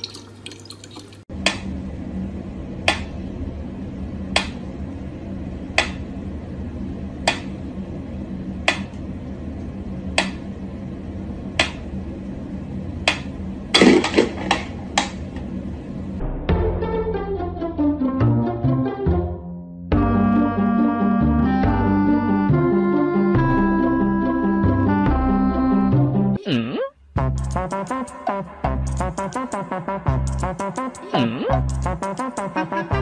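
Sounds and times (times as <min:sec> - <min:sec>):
tap water running: 0:00.0 - 0:01.3
steady low hum: 0:01.3 - 0:16.5.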